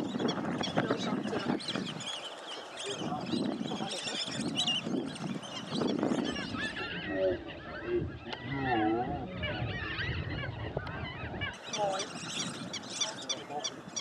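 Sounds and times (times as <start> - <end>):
birds calling and chattering: 0.0 - 14.0
low honking bird calls: 0.0 - 14.0.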